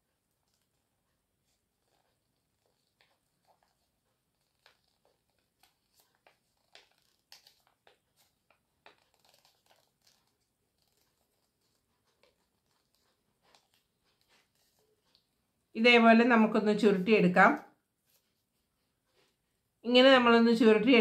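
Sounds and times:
paper crinkling and rustling: 1.4 - 15.4.

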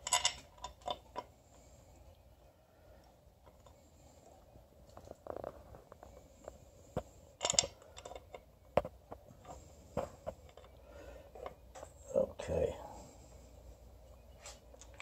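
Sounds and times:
clinks: 0.0 - 1.3, 7.4 - 8.4.

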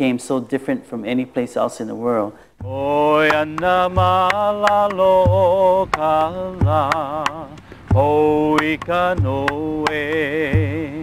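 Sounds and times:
low drum beat: 2.6 - 11.0
person chanting long notes: 2.7 - 11.0.

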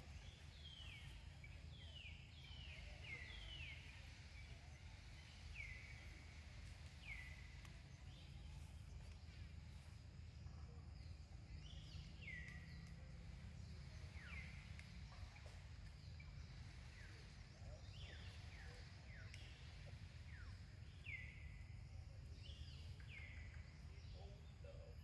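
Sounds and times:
low steady rumble: 0.0 - 25.0.

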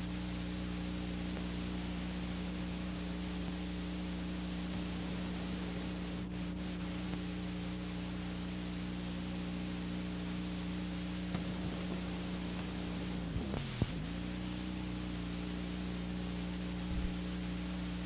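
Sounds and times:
electrical hum: 0.0 - 18.0
tape hiss: 0.0 - 18.0
faint clicks: 11.3 - 12.8.

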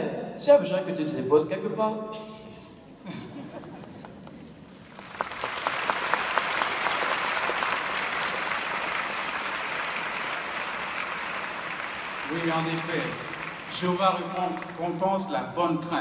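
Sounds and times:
audience applauding: 3.6 - 15.3.

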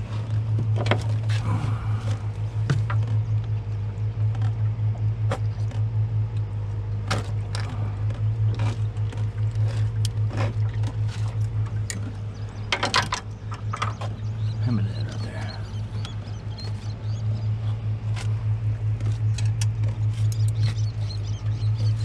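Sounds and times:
outboard motor running: 0.0 - 22.0
clicks and knocks on boat deck: 0.3 - 3.6, 4.2 - 14.5, 19.0 - 20.9.

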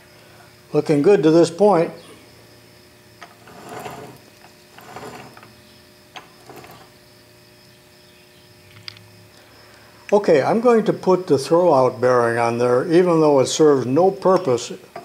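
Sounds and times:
metal case scraping: 3.3 - 5.5, 6.4 - 6.9.

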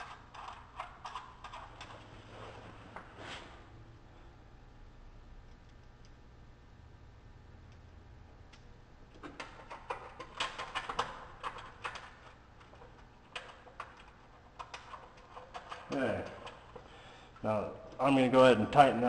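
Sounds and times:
hands clicking and rattling radiator parts: 0.0 - 2.1, 9.1 - 18.2.

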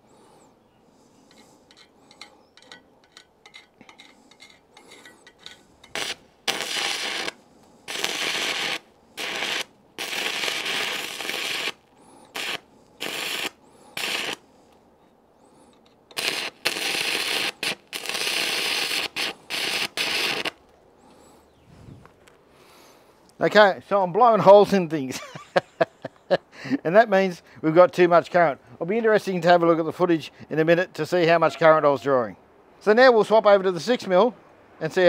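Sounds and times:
welding rod scratching: 1.3 - 14.4, 15.8 - 20.6
welding arc hissing: 5.8 - 14.4, 16.1 - 20.6.

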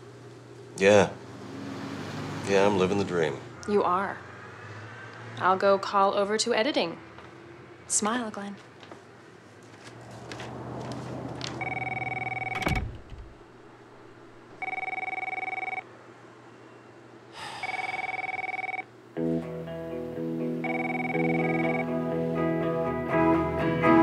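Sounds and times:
electronic telephone ring: 11.6 - 12.7, 14.6 - 15.9, 17.6 - 18.9, 20.6 - 21.9
sharp thump: 12.6 - 13.4
music: 19.2 - 24.0.

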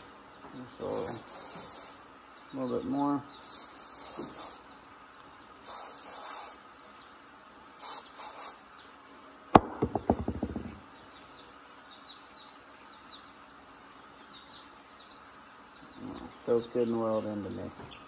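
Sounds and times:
rattle of ticks: 3.4 - 4.6
sharp knock: 9.6 - 10.8.

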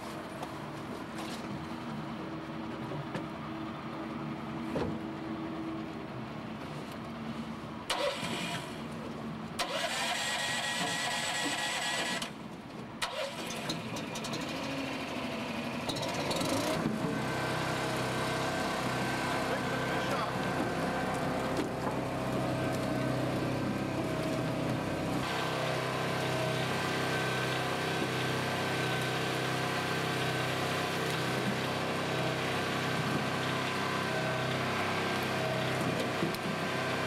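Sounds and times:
boat engine running: 14.5 - 37.0.

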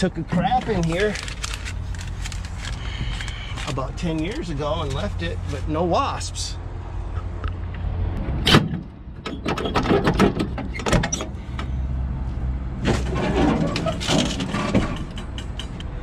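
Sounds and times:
truck hood creaking and scraping: 0.0 - 5.7, 8.2 - 11.8, 12.7 - 16.0
metal latch clicking and clanking: 13.7 - 16.0.

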